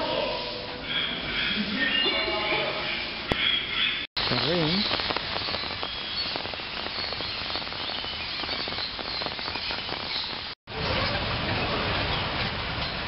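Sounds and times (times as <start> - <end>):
steady hiss: 4.2 - 10.6.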